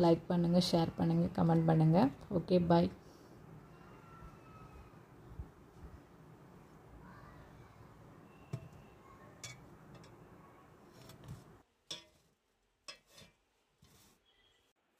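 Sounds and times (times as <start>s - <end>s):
metal pot clicks and knocks: 9.4s - 10.2s, 11.9s - 12.2s.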